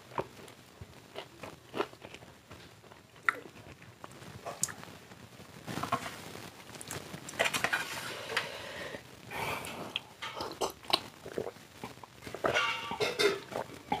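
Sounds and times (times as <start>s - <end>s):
person chewing: 0.1s - 2.3s, 2.9s - 4.8s, 9.9s - 14.0s.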